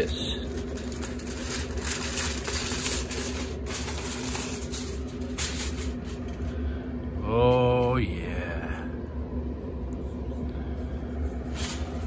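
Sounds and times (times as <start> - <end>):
aluminium foil crinkling: 0.0 - 6.6, 11.5 - 12.0
grill fan humming: 0.0 - 12.0.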